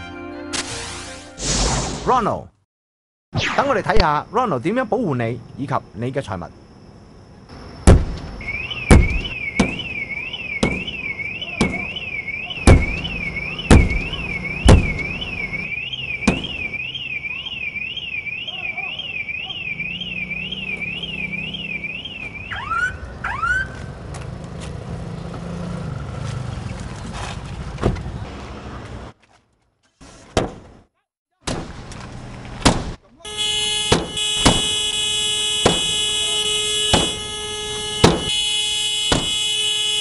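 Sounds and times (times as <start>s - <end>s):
car alarm chirps: 7.6s - 23.8s, 33.2s - 40.0s
car alarm warbling: 8.4s - 23.8s, 33.2s - 40.0s.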